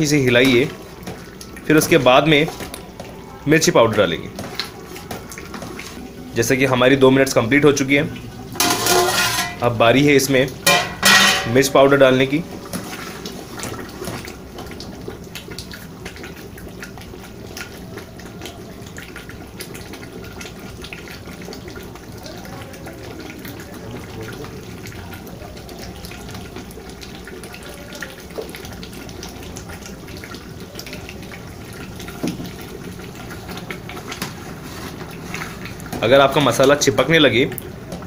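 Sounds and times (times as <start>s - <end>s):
gravy simmering in a pot: 0.0s - 38.0s
spoon and ladle tapping: 8.6s - 9.6s, 10.6s - 11.7s.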